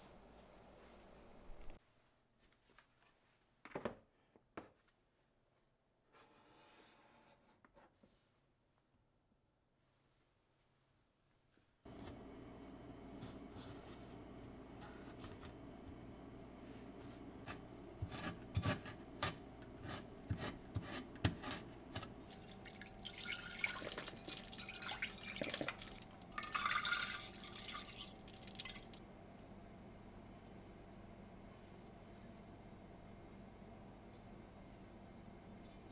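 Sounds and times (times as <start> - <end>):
low steady hum: 11.9 - 35.9
knife scraping: 17.4 - 22.1.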